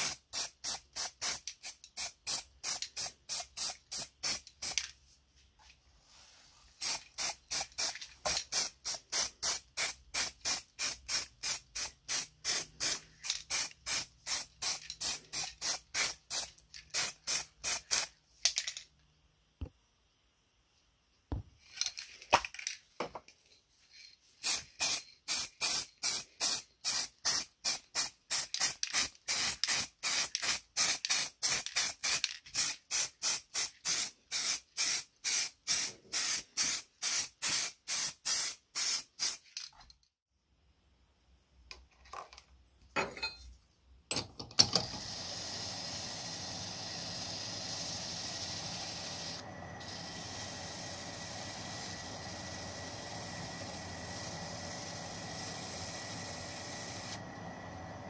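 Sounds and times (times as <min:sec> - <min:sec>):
paint spray hissing bursts: 0:00.0 - 0:04.8, 0:06.8 - 0:18.1, 0:24.4 - 0:39.4, 0:45.2 - 0:57.2.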